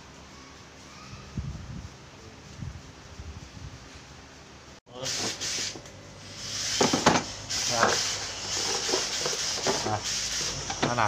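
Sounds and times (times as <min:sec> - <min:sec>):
rustling and scraping: 0:06.7 - 0:11.0.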